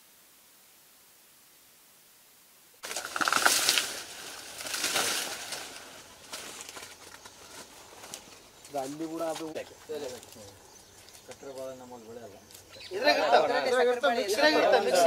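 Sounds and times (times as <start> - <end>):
dry leaves rustling and crunching: 2.8 - 11.7.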